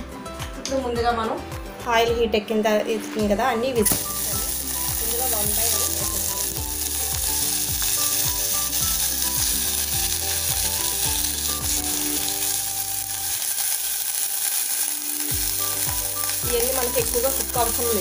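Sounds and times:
vegetables sizzling in oil: 0:03.8 - 0:18.0.

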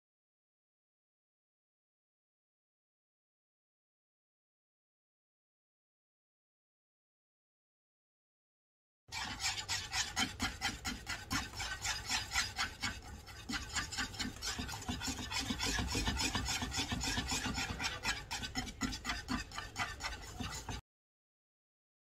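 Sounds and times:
whisk scraping a pan: 0:09.1 - 0:20.8.

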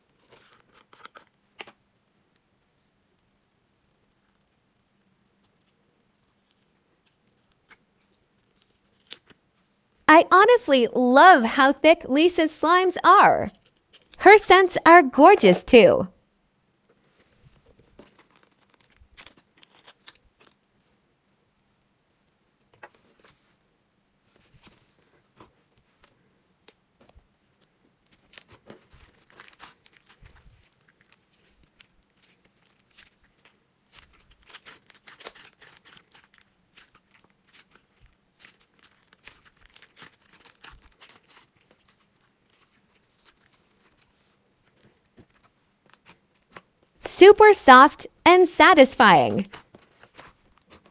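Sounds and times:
slime squelching crackles: 0:29.1 - 0:44.2.

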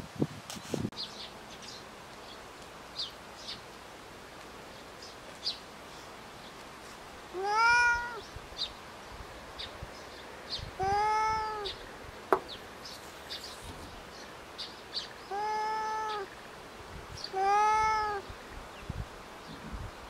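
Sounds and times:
cat meowing: 0:07.4 - 0:08.2, 0:10.8 - 0:11.7, 0:15.3 - 0:16.3, 0:17.3 - 0:18.2.

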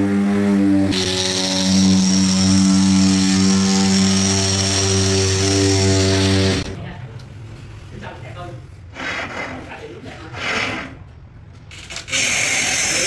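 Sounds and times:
electric motor humming: 0:00.9 - 0:06.8.

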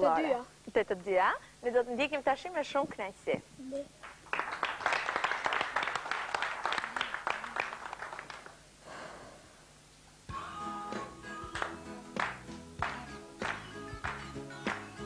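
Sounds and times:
studio audience applauding: 0:04.0 - 0:08.6, 0:11.4 - 0:15.0
instrumental song intro: 0:10.3 - 0:15.0.

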